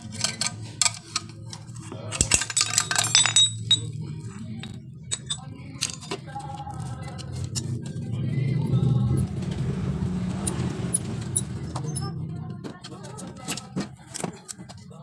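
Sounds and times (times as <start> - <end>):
screwdriver clinking on metal: 0.0 - 4.0, 4.6 - 7.8.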